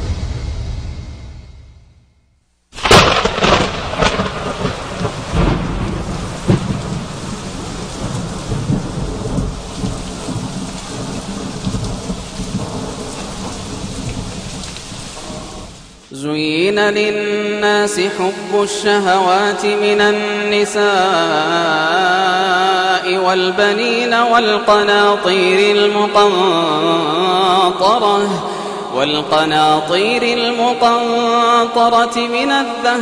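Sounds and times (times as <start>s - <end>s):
loud thunderclap: 0.0s - 2.0s, 2.8s - 16.0s
thunder rumbles: 0.0s - 2.1s, 2.8s - 16.0s
steady heavy rain: 2.8s - 16.1s, 27.7s - 30.8s.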